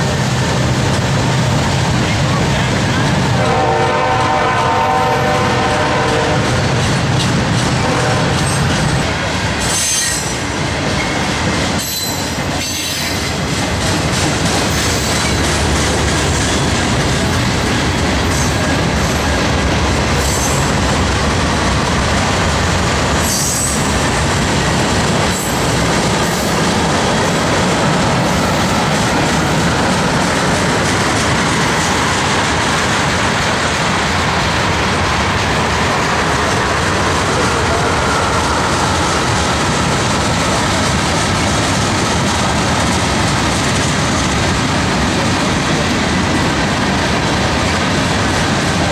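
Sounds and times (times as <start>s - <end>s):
freight train rumbling past: 0.0s - 48.9s.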